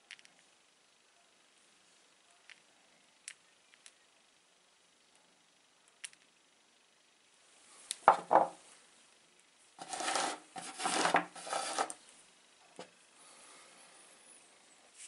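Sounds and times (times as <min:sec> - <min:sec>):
stones clattering on wooden table: 0:08.0 - 0:08.6, 0:09.8 - 0:12.0.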